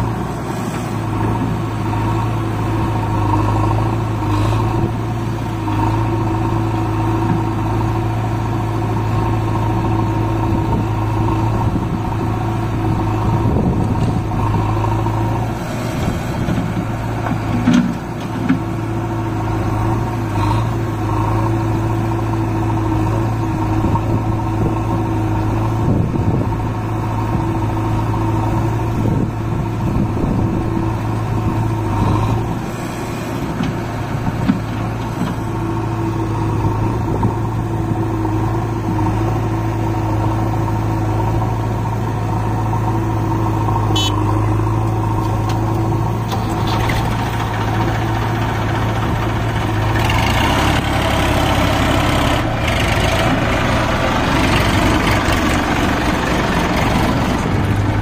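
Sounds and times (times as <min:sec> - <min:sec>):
diesel engines idling: 0:00.0 - 0:58.0.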